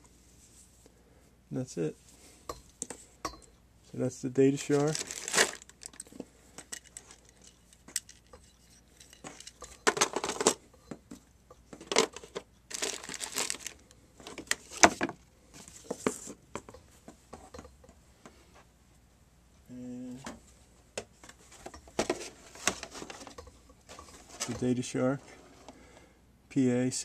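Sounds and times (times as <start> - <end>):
plastic bag crinkling: 4.6 - 6.1, 11.8 - 15.0.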